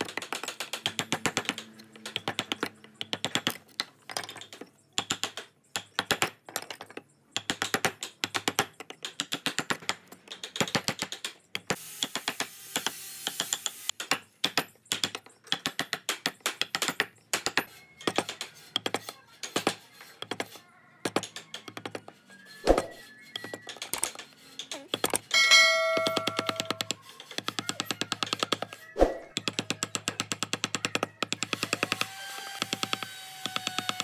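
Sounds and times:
carving tools cutting wood: 0:10.6 - 0:25.3, 0:26.1 - 0:34.0
soft background music: 0:14.2 - 0:33.0.

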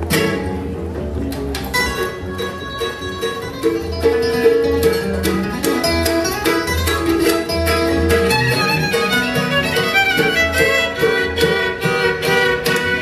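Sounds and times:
fiddle: 0:00.0 - 0:13.0
plucked upright bass: 0:00.0 - 0:13.0
strummed acoustic guitar: 0:00.0 - 0:13.0.

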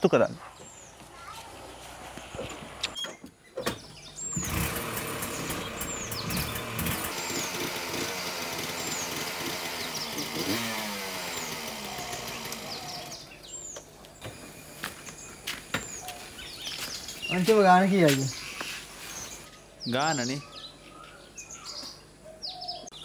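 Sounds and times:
auto-rickshaw engine starting and revving: 0:04.1 - 0:14.6.

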